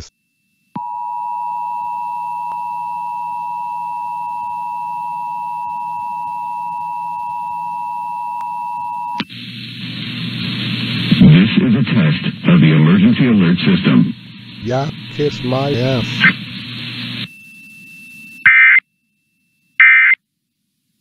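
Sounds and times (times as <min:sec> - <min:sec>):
two-tone alarm signal: 0:00.0 - 0:09.2, 0:15.1 - 0:20.2.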